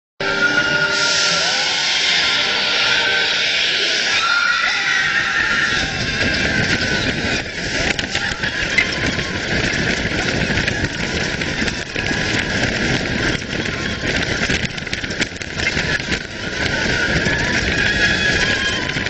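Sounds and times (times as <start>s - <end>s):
roller coaster track rumble: 0.2s - 19.0s
wind noise on microphone: 4.2s - 19.0s.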